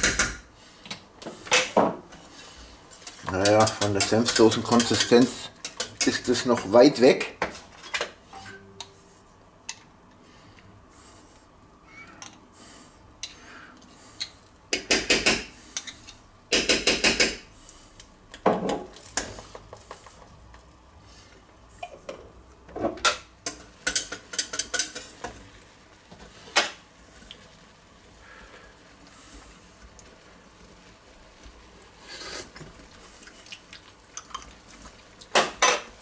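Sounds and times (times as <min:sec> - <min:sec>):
whisk clattering in metal saucepan: 0:03.3 - 0:06.5, 0:23.8 - 0:25.0.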